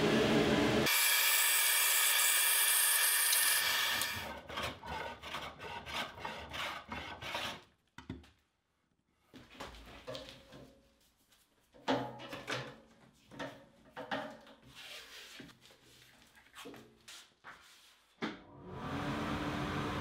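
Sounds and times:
bandsaw cutting wood: 0.8s - 7.4s
hand plane shaving wood: 4.2s - 7.7s.

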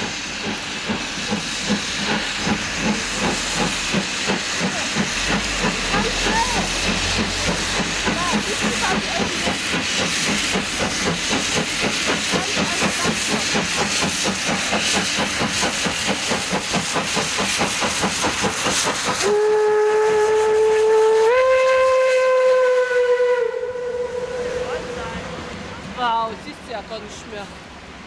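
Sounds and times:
steam hissing: 0.0s - 27.5s
steam locomotive exhaust beating: 0.0s - 27.5s
steam whistle blast: 19.2s - 25.1s.

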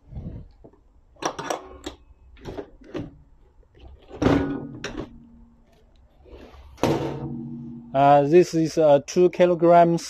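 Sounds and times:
metal stretcher platform clanking: 4.1s - 5.5s, 6.8s - 8.0s
sharp knocks and bang: 4.2s - 5.3s, 6.8s - 8.0s.

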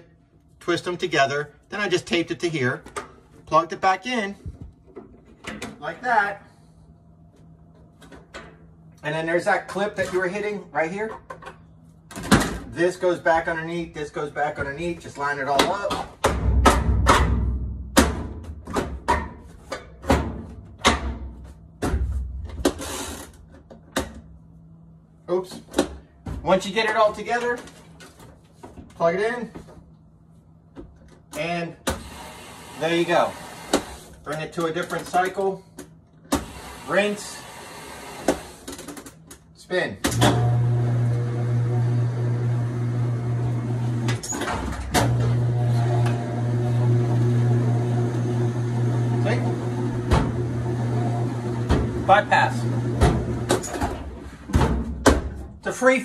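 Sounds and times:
washing machine motor humming: 40.2s - 54.2s.

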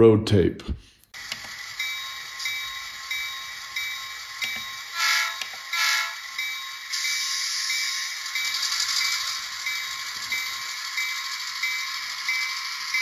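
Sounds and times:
diesel locomotive running hiss: 1.2s - 13.0s
multi-tone horn blasts: 5.0s - 6.2s.

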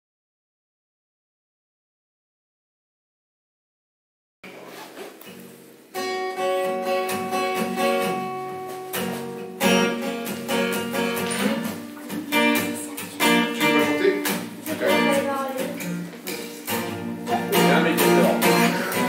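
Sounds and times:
acoustic guitar picking and chords: 4.5s - 19.0s.

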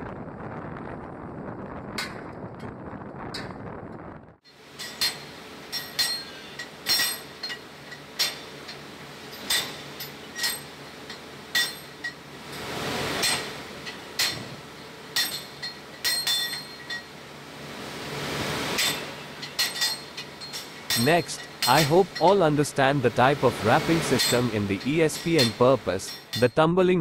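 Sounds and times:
rapping hammers clanking on anvils: 18.8s - 22.7s, 23.6s - 26.8s.

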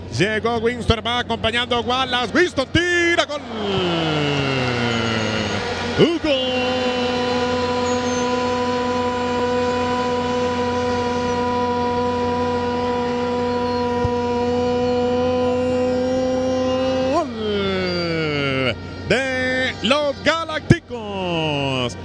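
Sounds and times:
commentator shouting goal call: 0.3s - 22.0s.

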